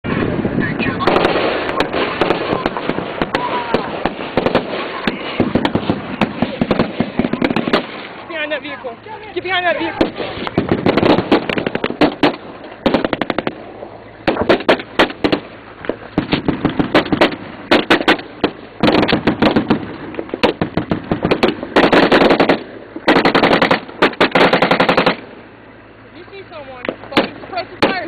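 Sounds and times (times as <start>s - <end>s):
automatic gunfire bursts: 1.0s - 8.0s, 10.0s - 13.6s, 14.2s - 15.5s, 16.2s - 19.8s, 20.4s - 25.3s.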